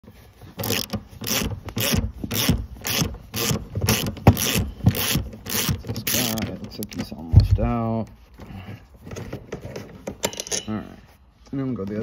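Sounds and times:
ratchet wrench clicking: 0.6s - 6.4s.

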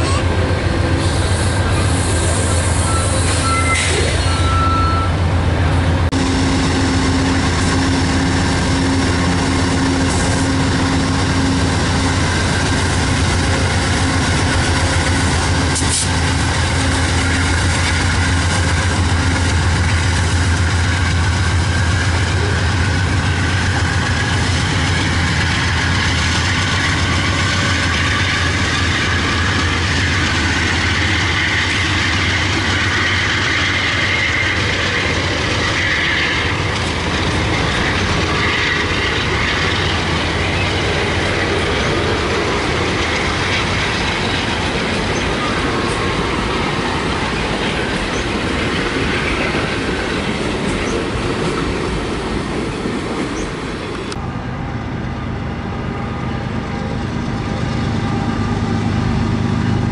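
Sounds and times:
diesel locomotive engine drone: 0.0s - 59.9s
train wheel and rail hiss: 0.0s - 59.9s.

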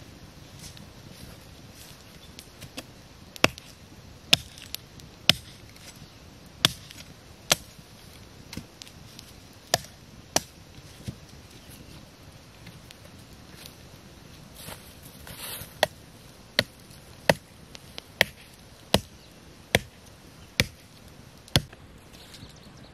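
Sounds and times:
machete chopping wood: 3.4s - 3.7s, 4.3s - 4.7s, 5.3s - 5.6s, 6.6s - 7.7s, 9.7s - 10.5s, 18.2s - 19.1s, 19.7s - 20.0s, 20.6s - 20.9s, 21.5s - 21.8s.

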